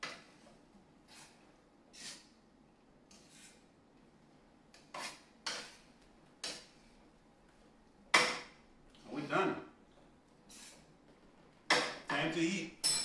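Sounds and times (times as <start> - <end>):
tongs scraping a skillet: 0.0 - 2.4, 3.1 - 3.7, 4.8 - 6.9.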